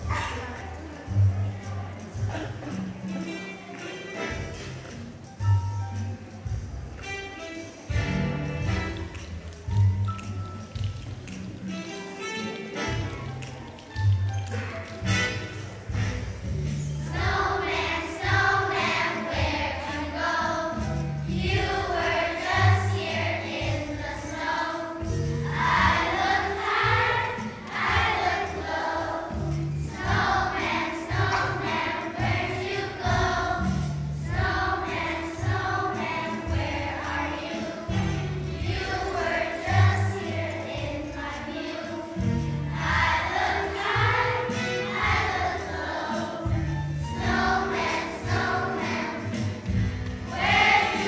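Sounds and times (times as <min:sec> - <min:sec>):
instrumental accompaniment with bass: 0:00.0 - 0:23.9, 0:42.1 - 0:51.0
children's choir singing in unison: 0:15.6 - 0:51.0.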